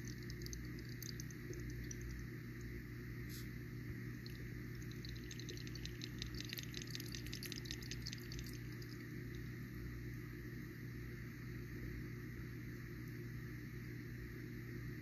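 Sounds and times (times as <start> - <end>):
bubbles popping fizz: 0.0 - 2.3, 4.2 - 9.2
steady low hum: 0.0 - 15.0.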